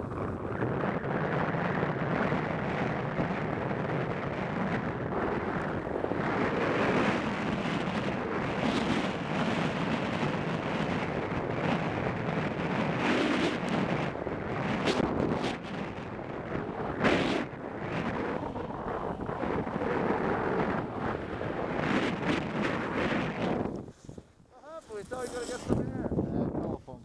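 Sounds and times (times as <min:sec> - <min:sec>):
wind buffeting microphone: 0:00.0 - 0:27.0
skis sliding over snow: 0:18.0 - 0:26.1.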